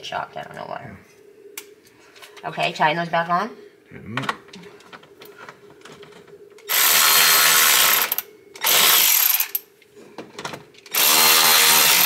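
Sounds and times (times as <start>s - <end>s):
electric ratchet running: 6.7s - 9.6s, 10.9s - 12.0s.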